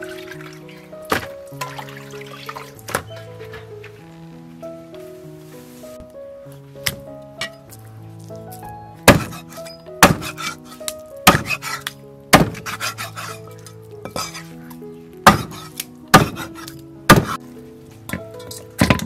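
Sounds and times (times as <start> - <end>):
cleaver chopping on wooden block: 9.1 - 10.6, 11.3 - 13.0, 15.3 - 17.4.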